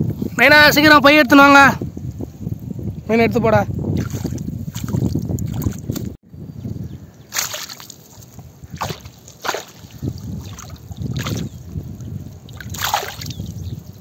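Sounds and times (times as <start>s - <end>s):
short sharp splashes: 3.9s - 6.1s, 7.3s - 14.0s
water sloshing and splashing: 3.9s - 6.2s, 7.3s - 14.0s.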